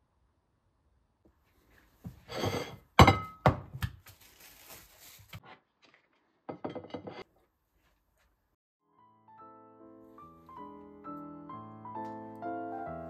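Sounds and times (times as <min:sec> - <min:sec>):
cling film crinkling: 0:04.0 - 0:06.0.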